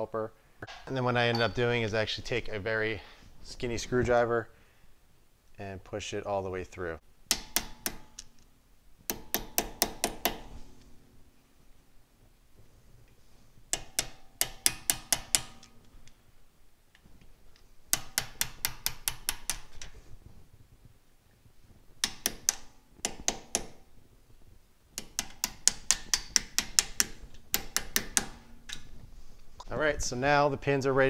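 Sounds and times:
hammer tapping metal screwdriver: 13.7s - 15.8s, 17.9s - 20.0s, 22.0s - 23.8s, 25.0s - 28.9s.

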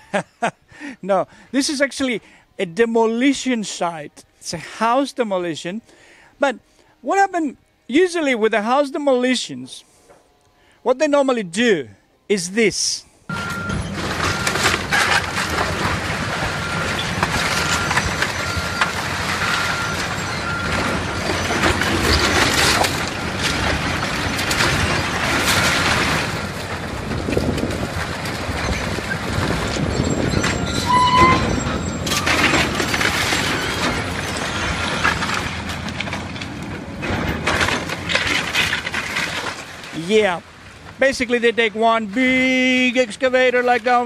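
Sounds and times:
excavator engine running: 13.3s - 39.3s
walls crashing and debris falling: 13.4s - 40.2s
short high beeps: 30.6s - 32.4s.

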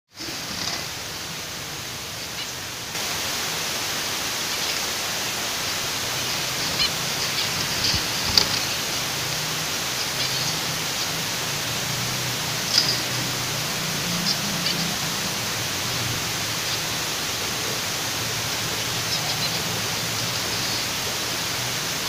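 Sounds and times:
steady hiss: 0.1s - 22.0s
finches chirping: 4.4s - 11.8s, 12.5s - 22.0s.

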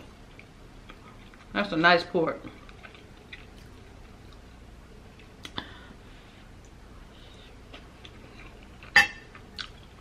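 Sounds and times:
person chewing food: 2.5s - 10.0s.

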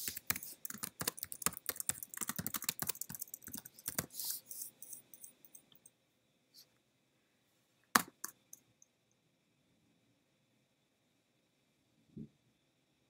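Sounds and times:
computer keyboard typing: 0.0s - 4.7s.

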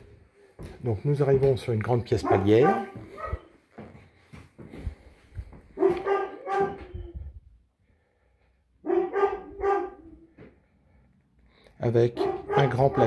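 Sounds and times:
dog barking: 2.2s - 3.5s, 5.8s - 7.2s, 8.8s - 10.4s, 12.1s - 13.0s.

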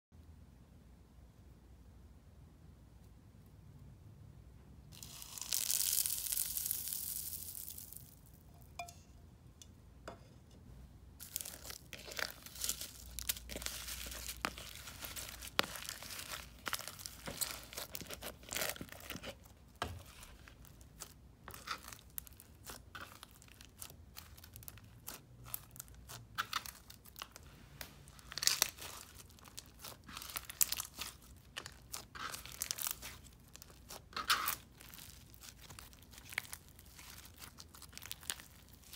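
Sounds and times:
slime crunching and popping: 4.9s - 8.3s, 11.2s - 19.5s, 20.1s - 27.4s, 28.2s - 38.9s.

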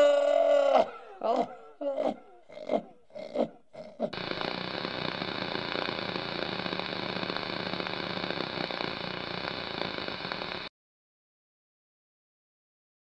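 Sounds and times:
tv static hiss: 4.2s - 10.7s.

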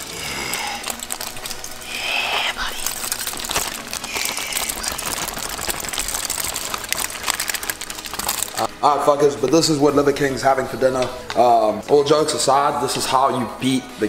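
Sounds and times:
aluminium foil crinkling: 0.0s - 8.8s.

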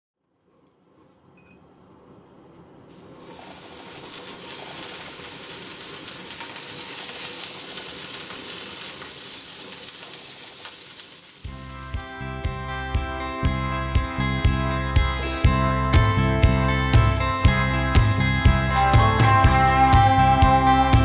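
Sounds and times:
beef sizzling in frying pan: 2.9s - 12.3s.

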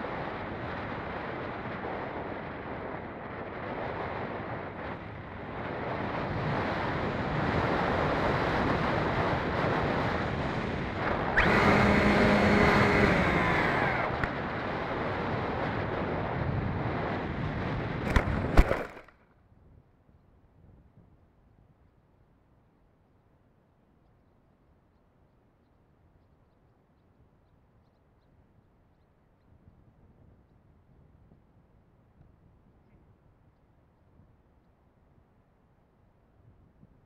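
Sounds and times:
electric motor whine: 10.6s - 14.5s.

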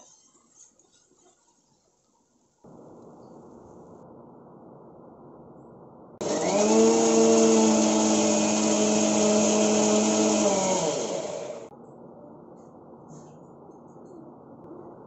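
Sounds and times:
mixer grinder motor whine: 6.2s - 11.7s.

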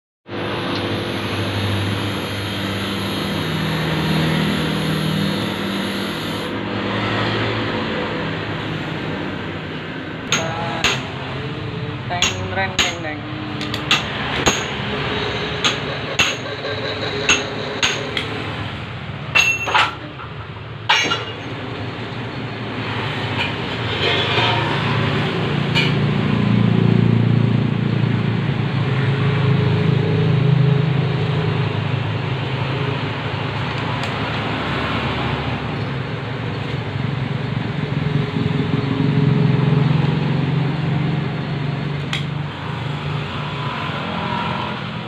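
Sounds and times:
machine hum: 0.3s - 12.1s
high whine: 0.3s - 13.3s
metal tools clinking: 19.4s - 20.3s, 20.9s - 21.6s.

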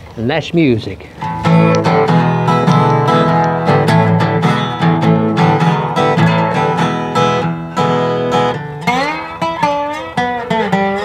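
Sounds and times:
resonator guitar fingerpicked: 1.2s - 11.0s.

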